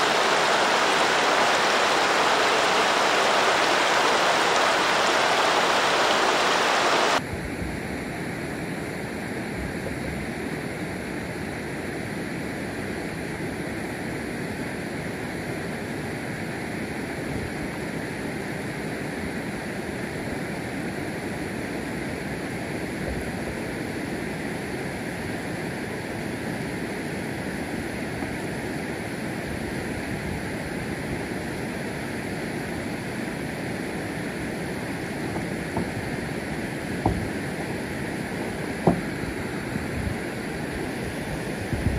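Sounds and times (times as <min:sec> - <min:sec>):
river flowing: 0:00.0 - 0:07.2, 0:31.4 - 0:41.7
stream water rushing over rocks: 0:00.0 - 0:07.2, 0:32.7 - 0:41.9
wind: 0:00.0 - 0:41.9.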